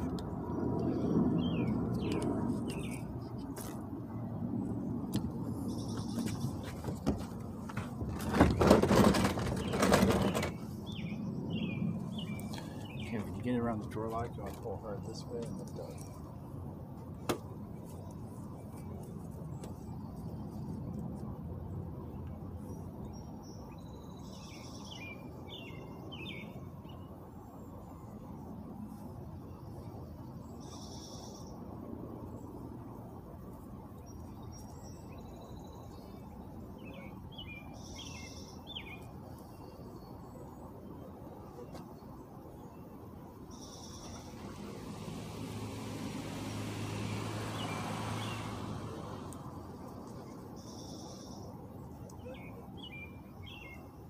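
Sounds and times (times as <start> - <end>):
low outdoor background rumble: 0.0 - 54.0
vehicle driving past: 43.6 - 50.8.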